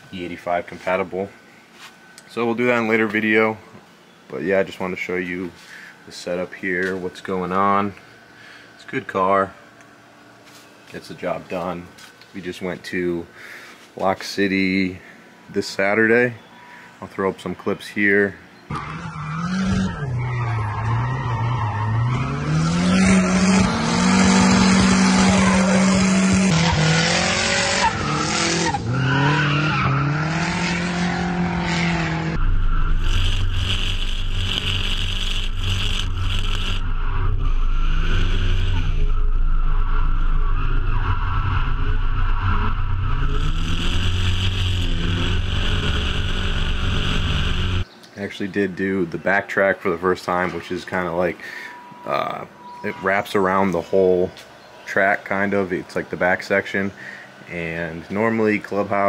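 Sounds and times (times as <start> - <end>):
car engine revving: 18.7 - 47.9
tyre squeal: 18.7 - 47.9
low rumble: 31.9 - 47.8.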